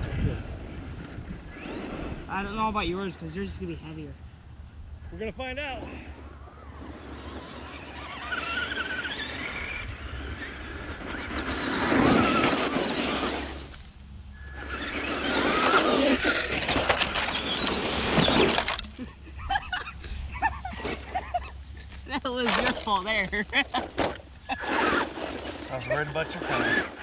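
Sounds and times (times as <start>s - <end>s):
electric motors whining: 6.1s - 19.2s, 20.7s - 27.0s
tyres spraying gravel: 10.6s - 14.0s, 14.6s - 19.1s, 24.6s - 27.0s
car crashing into metal ramp: 11.8s - 13.9s.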